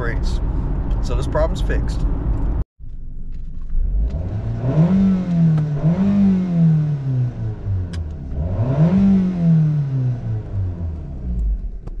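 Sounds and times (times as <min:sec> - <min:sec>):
car engine accelerating: 0:03.3 - 0:12.0.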